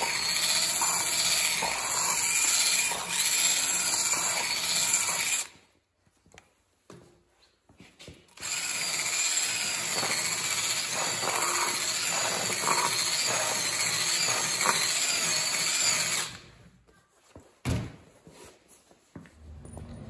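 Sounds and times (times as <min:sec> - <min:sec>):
drill wire brush scrubbing metal: 0:00.0 - 0:05.5, 0:08.4 - 0:16.3.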